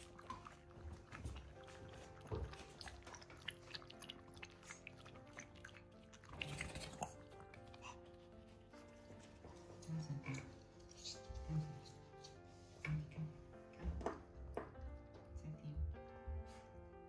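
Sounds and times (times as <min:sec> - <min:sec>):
puppy lapping and chewing: 0:00.0 - 0:11.2
quiet background music: 0:00.0 - 0:17.0.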